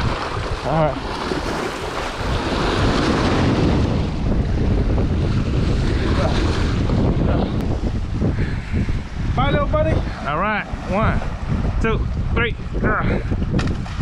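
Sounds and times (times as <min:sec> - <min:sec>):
waves splashing against rocks: 0:00.0 - 0:08.3
wind buffeting microphone: 0:00.0 - 0:14.0.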